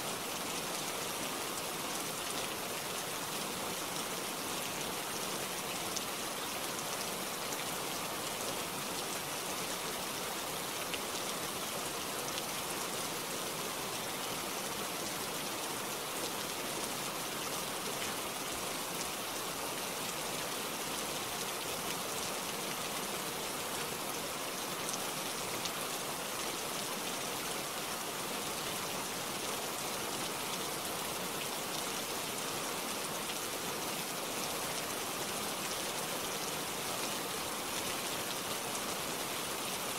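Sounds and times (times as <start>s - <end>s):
rain falling: 0.0s - 39.9s.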